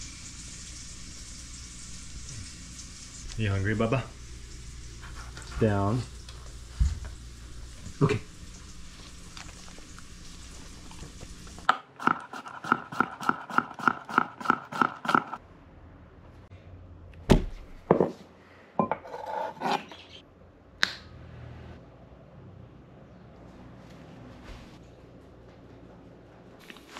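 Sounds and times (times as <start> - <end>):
knife chopping on wooden board: 11.7 - 15.3.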